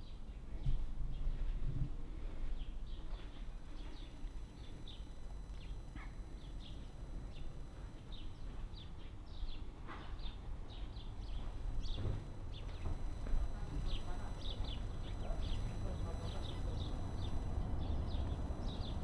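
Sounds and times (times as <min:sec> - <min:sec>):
small birds chirping: 0:02.6 - 0:19.0
steady low rumble: 0:10.4 - 0:19.0.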